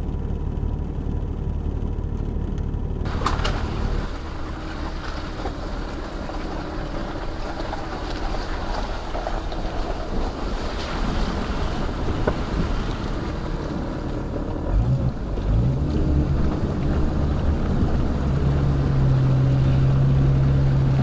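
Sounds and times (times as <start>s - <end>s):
car engine under light throttle: 0.0s - 21.0s
water rushing: 3.1s - 21.0s.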